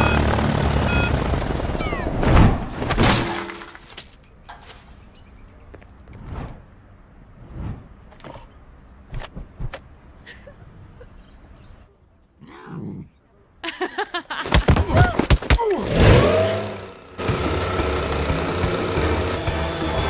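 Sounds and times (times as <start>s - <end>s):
whooshes: 6.1s - 8.5s.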